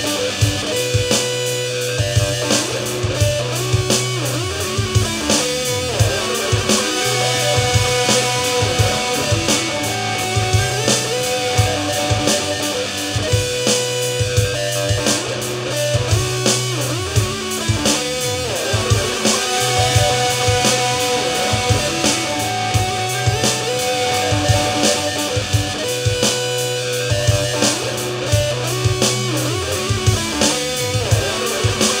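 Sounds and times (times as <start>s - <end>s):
electric guitar melody: 0.0s - 32.0s
low bass notes: 0.0s - 32.0s
steady drum beat: 0.0s - 32.0s.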